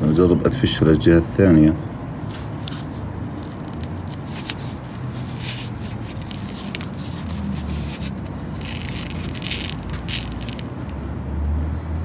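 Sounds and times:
rubber sandal crackling: 0:02.3 - 0:11.0.

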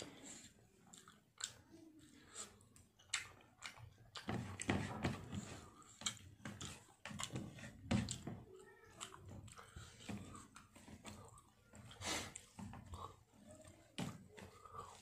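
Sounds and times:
person chewing with wet mouth clicks: 0:00.7 - 0:04.7, 0:05.7 - 0:07.4.

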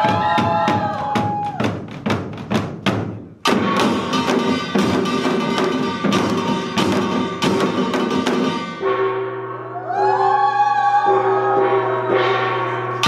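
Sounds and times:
drumming: 0:00.0 - 0:09.0
metal gongs ringing: 0:03.5 - 0:10.0, 0:11.1 - 0:13.0.

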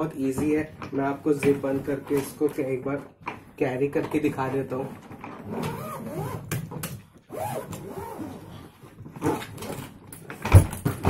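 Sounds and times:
suitcase zipper closing: 0:04.8 - 0:10.0
suitcase thumping down: 0:09.7 - 0:11.0.

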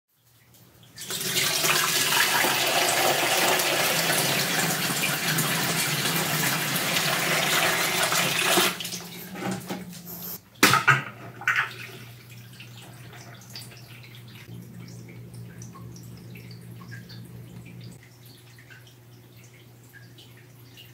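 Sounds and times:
water trickling and dripping: 0:00.1 - 0:01.4, 0:08.7 - 0:20.9
low steady hum: 0:08.8 - 0:20.9.

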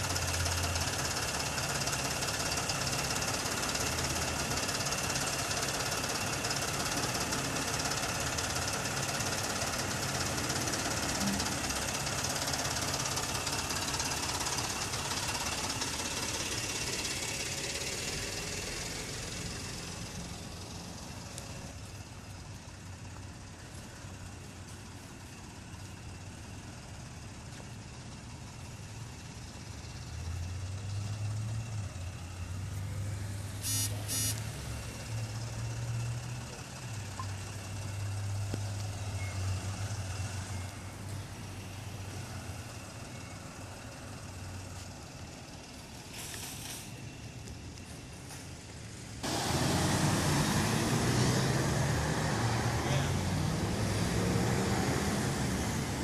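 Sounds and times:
diesel van engine driving: 0:00.0 - 0:56.0
short electronic beeps: 0:33.6 - 0:34.4.

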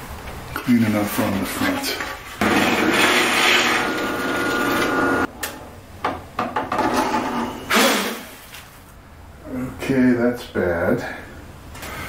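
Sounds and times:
drill press boring into wood: 0:02.4 - 0:05.3.

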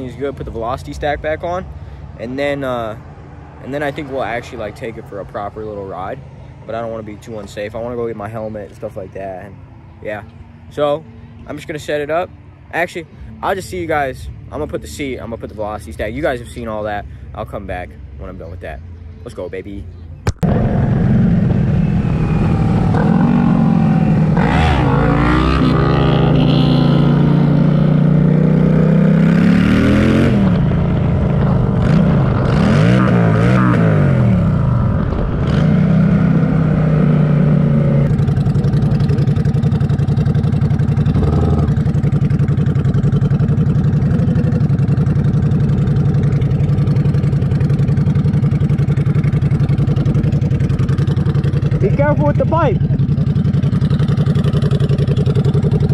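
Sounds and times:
motorcycle engine revving: 0:20.3 - 0:55.9.

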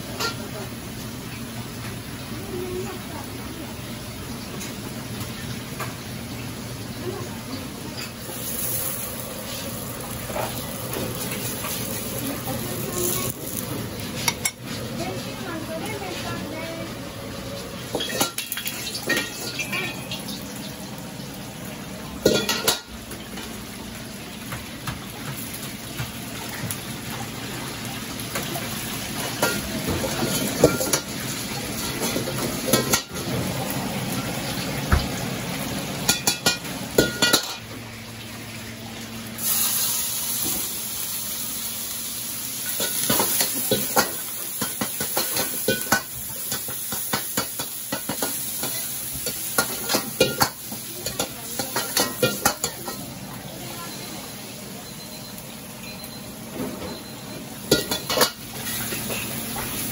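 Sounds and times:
meat sizzling in hot oil: 0:00.0 - 0:59.9
ladle clanking and scraping in wok: 0:07.9 - 0:14.9, 0:17.8 - 0:20.3, 0:22.2 - 0:23.6, 0:29.1 - 0:33.6, 0:36.0 - 0:37.7, 0:42.5 - 0:54.2, 0:56.6 - 0:59.9.

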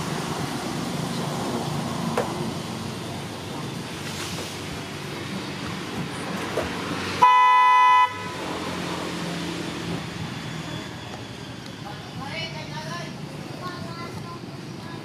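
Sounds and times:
vehicle horn honking: 0:07.2 - 0:08.4.

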